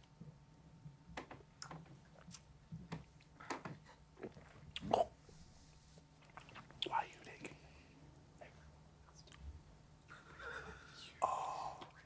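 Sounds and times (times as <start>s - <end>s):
lip smacks and sips: 6.1s - 7.6s.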